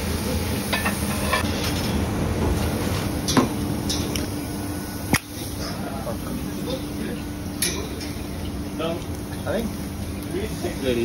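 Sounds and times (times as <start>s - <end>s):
steady hum: 0.0s - 11.0s
metal tongs clinking on grate: 3.3s - 4.2s, 7.6s - 8.2s.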